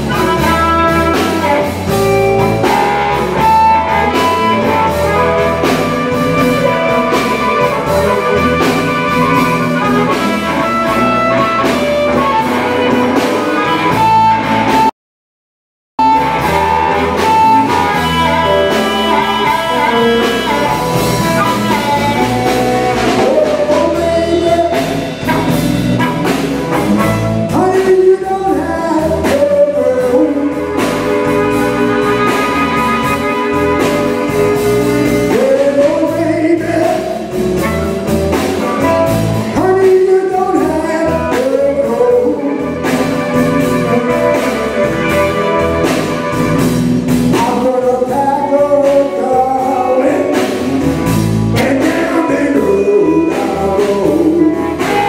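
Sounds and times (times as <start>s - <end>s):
amplified harmonica: 0.0s - 14.6s, 16.0s - 23.4s, 30.5s - 35.4s, 42.2s - 47.2s
bass guitar: 0.0s - 14.9s, 16.0s - 55.0s
drums: 0.0s - 14.9s, 16.0s - 55.0s
electric guitar: 0.0s - 14.9s, 16.0s - 55.0s.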